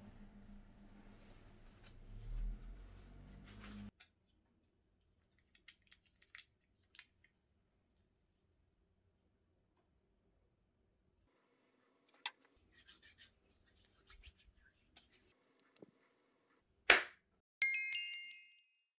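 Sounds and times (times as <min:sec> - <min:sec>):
hands rubbing cream: 0:12.1 - 0:16.1
bright ringing chime: 0:17.6 - 0:19.0.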